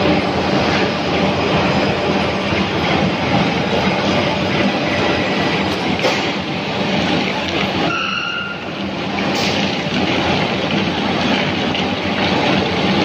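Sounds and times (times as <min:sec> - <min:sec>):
loud steady foundry rumbling: 0:00.0 - 0:13.0
brief high whistle: 0:07.9 - 0:08.6.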